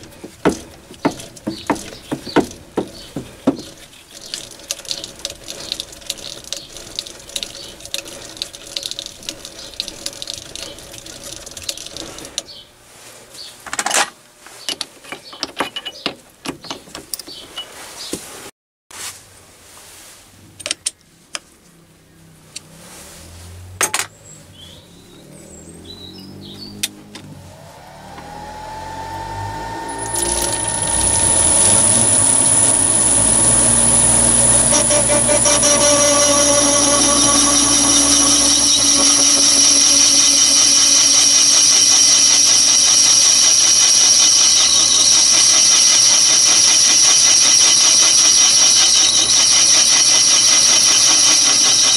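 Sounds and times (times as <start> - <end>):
lathe motor whining: 0.0 - 12.0, 27.0 - 51.9
metal clicks and scrapes: 0.0 - 12.5.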